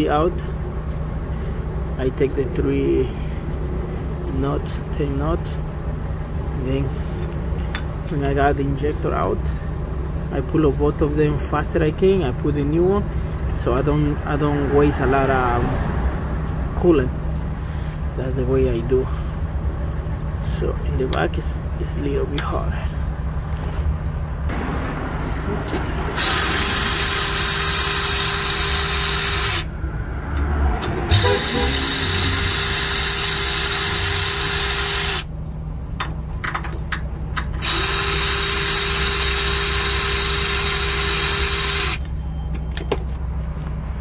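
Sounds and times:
power ratchet whining: 26.1 - 29.7, 30.8 - 35.3, 37.4 - 42.1.

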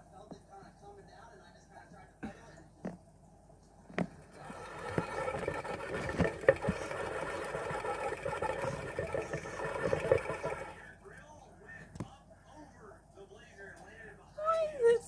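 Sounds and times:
pet exercise wheel whirring: 4.0 - 11.3.

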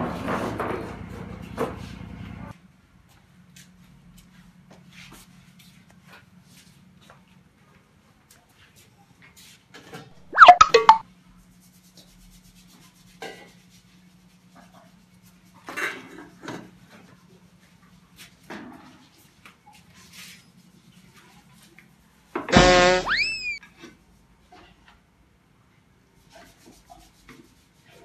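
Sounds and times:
loud squeak falling in pitch: 10.2 - 11.0, 22.5 - 23.6.

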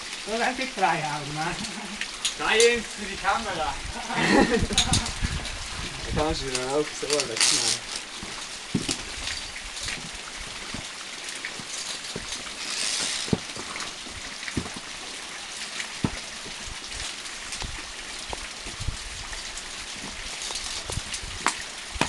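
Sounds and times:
steady hiss: 0.0 - 22.0
climbing gear clicking on rock: 6.5 - 10.1, 10.7 - 14.9.

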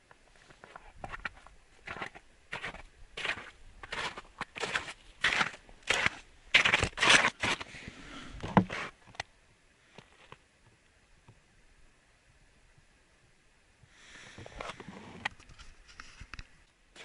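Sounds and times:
footsteps crunching on snowy ice: 0.4 - 7.8.

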